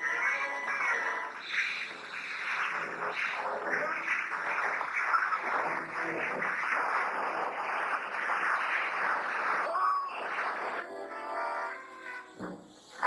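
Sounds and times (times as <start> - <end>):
steam hissing: 1.4 - 10.8.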